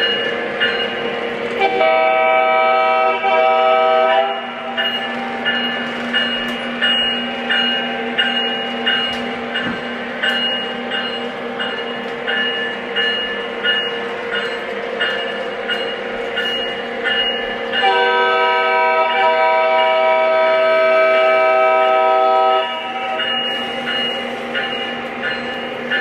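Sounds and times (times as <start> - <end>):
locomotive bell ringing: 0.0 - 26.0
locomotive horn chord: 1.6 - 4.6, 17.8 - 23.2.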